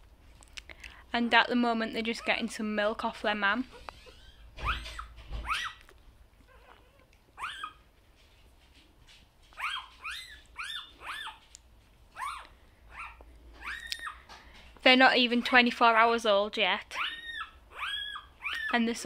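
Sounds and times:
puppies squeaking: 0:03.6 - 0:07.9, 0:09.4 - 0:14.3, 0:16.9 - 0:19.0.

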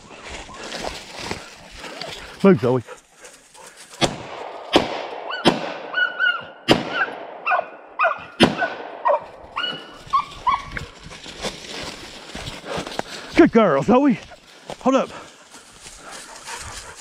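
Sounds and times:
footsteps in dry leaves and twigs: 0:00.0 - 0:04.7, 0:09.1 - 0:17.0
dog whining: 0:06.0 - 0:06.6, 0:09.6 - 0:10.8.

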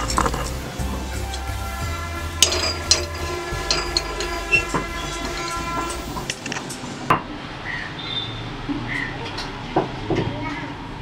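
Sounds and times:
steady pitched tone: 0:00.0 - 0:07.1.

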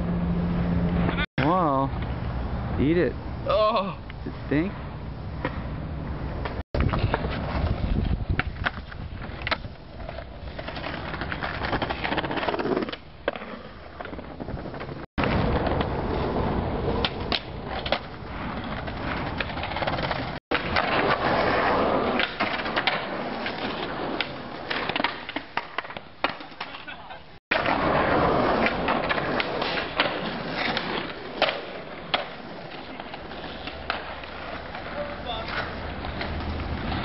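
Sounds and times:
skateboard wheels rolling on concrete: 0:00.0 - 0:37.0
skateboard clacks: 0:16.9 - 0:37.0.

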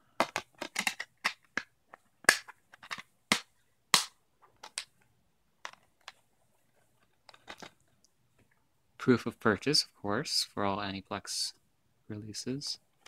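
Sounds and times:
plastic disc cases clicking: 0:00.2 - 0:04.9, 0:07.2 - 0:07.8.

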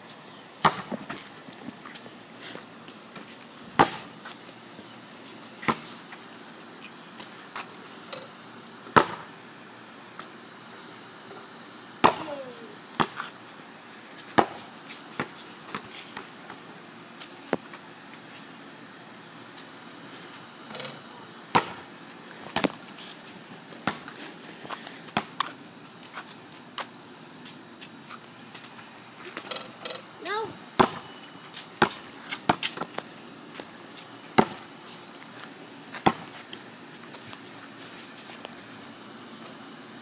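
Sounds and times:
basketball striking hoop: 0:00.6 - 0:01.0, 0:09.0 - 0:09.3, 0:12.0 - 0:12.4, 0:21.5 - 0:21.9, 0:30.8 - 0:31.1
basketball bouncing on concrete: 0:00.6 - 0:01.3, 0:03.1 - 0:04.1, 0:05.6 - 0:06.0, 0:08.8 - 0:09.3, 0:12.0 - 0:13.3, 0:14.2 - 0:16.3, 0:20.9 - 0:21.9, 0:22.5 - 0:22.8, 0:23.8 - 0:24.2, 0:25.1 - 0:25.5, 0:30.8 - 0:33.0, 0:34.3 - 0:34.7, 0:35.9 - 0:36.5.

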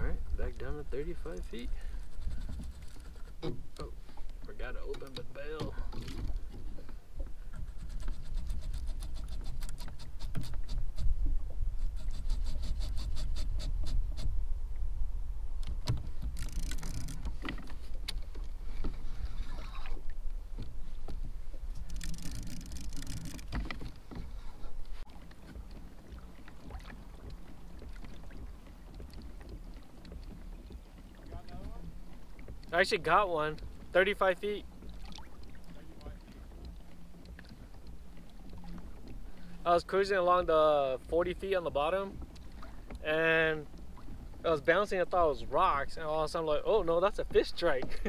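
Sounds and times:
wind on microphone: 0:00.0 - 0:03.8, 0:05.8 - 0:32.6
water lapping against kayak hull: 0:00.0 - 0:48.0
fishing reel clicking: 0:16.4 - 0:17.3, 0:21.8 - 0:23.6.

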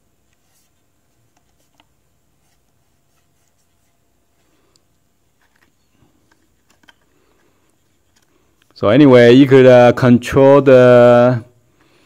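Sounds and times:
hands rubbing plastic: 0:00.2 - 0:08.8.

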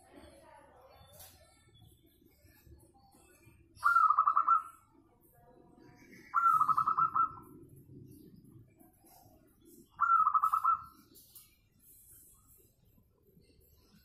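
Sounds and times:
dove cooing: 0:06.3 - 0:07.6, 0:10.0 - 0:10.9.

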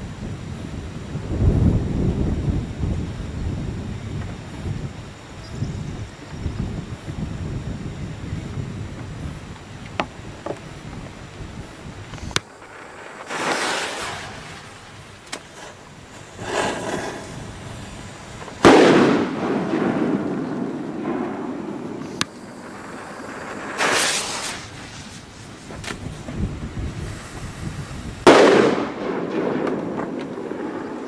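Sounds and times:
firecracker cracks: 0:12.2 - 0:31.0
big echoing bang: 0:18.6 - 0:24.7, 0:28.3 - 0:30.8.

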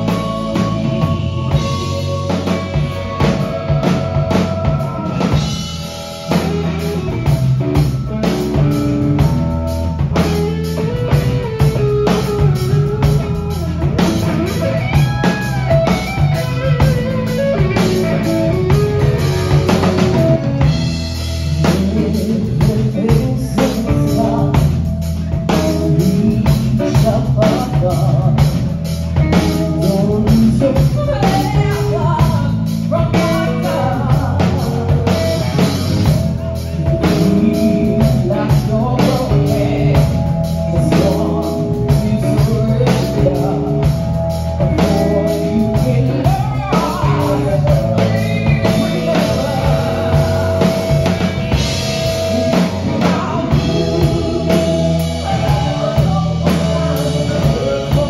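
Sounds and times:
bass guitar: 0:00.0 - 0:58.0
drum kit beat: 0:00.0 - 0:58.0
electric guitar: 0:00.0 - 0:58.0
keyboard: 0:00.0 - 0:58.0
woman singing: 0:21.6 - 0:28.6, 0:29.4 - 0:35.7, 0:36.6 - 0:58.0.

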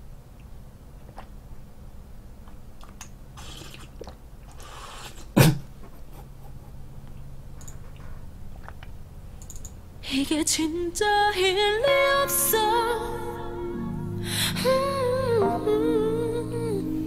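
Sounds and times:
person slurping: 0:02.8 - 0:05.6.

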